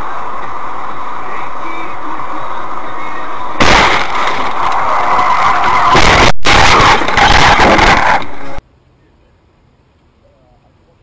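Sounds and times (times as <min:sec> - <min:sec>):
car road noise rushing: 0:00.0 - 0:08.6.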